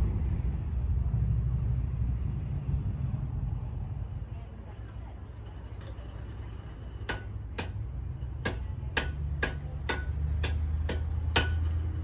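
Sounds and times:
hammer striking metal on anvil: 7.0 - 12.0.

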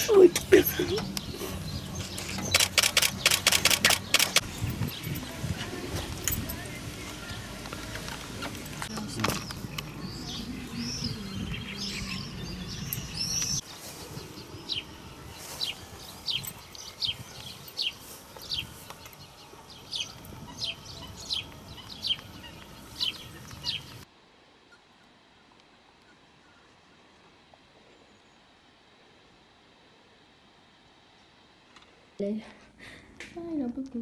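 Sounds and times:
small birds chirping: 0.0 - 24.0
low background noise: 0.0 - 34.0.

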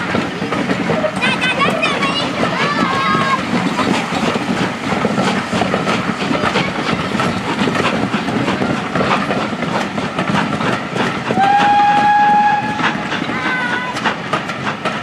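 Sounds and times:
train wheels clattering over rail joints: 0.0 - 15.0
train whistle: 11.3 - 13.0.

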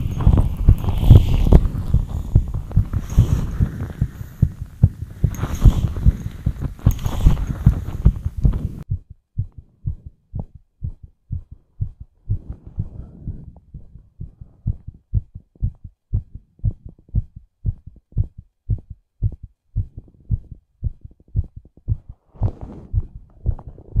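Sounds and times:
fast heartbeat thuds: 0.0 - 24.0.

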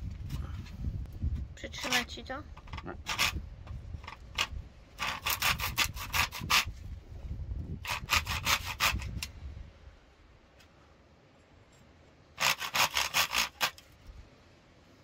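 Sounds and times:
hand saw cutting bamboo: 1.8 - 2.1, 3.0 - 3.4, 4.3 - 6.7, 7.8 - 9.3, 12.4 - 13.9.

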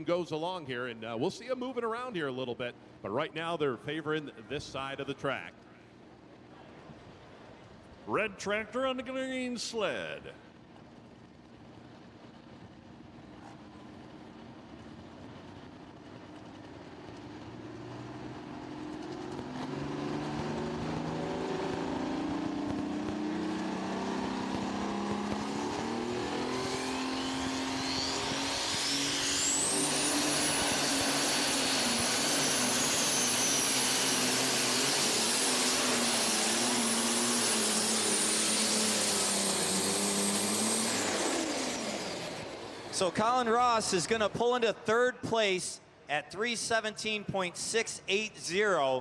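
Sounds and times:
high-pitched turbo whine: 10.2 - 49.0
diesel tractor engine revving: 13.4 - 44.8.

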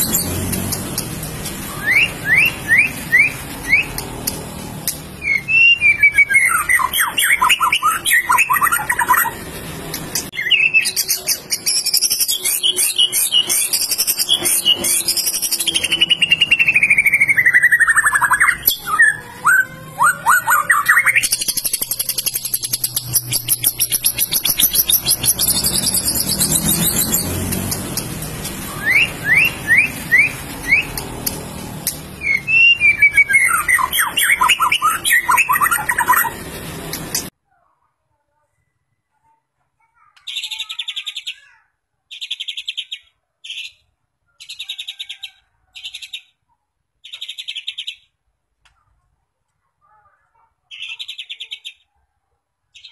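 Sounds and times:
bird singing varied whistles: 1.7 - 4.0, 5.2 - 9.4, 10.4 - 27.2, 28.7 - 31.0, 32.2 - 36.4.

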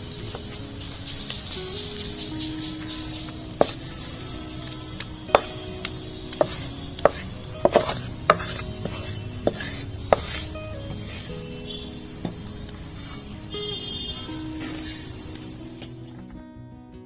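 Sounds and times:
wooden spoon knocking on steel: 5.3 - 5.6, 6.4 - 11.0.

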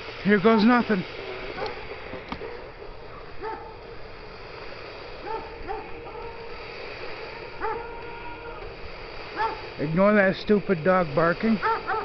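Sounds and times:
steady hiss: 0.0 - 12.0
dog barking: 1.6 - 3.8, 5.2 - 6.5, 7.6 - 8.0, 9.3 - 9.7, 11.6 - 12.0.

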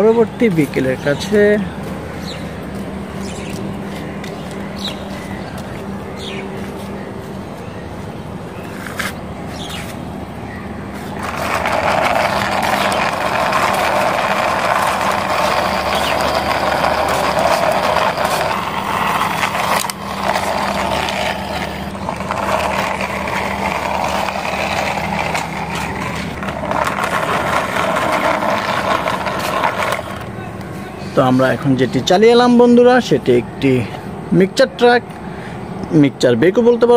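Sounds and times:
toy truck wheels rolling: 10.9 - 31.7.

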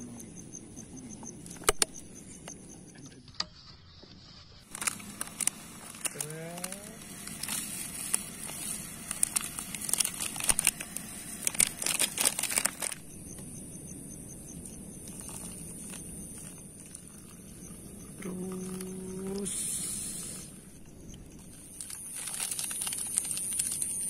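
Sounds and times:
plastic sachet crinkling: 4.7 - 13.0, 21.5 - 24.0
water pouring into cup: 15.2 - 20.6.

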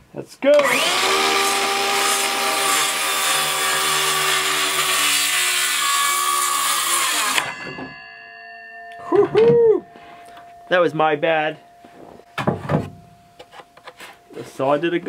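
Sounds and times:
circular saw cutting wood: 0.5 - 7.6.

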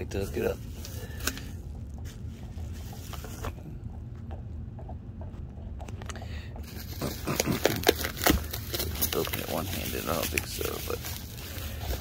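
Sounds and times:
steady low rumble: 0.0 - 12.0
bubble wrap crinkling: 6.7 - 12.0.

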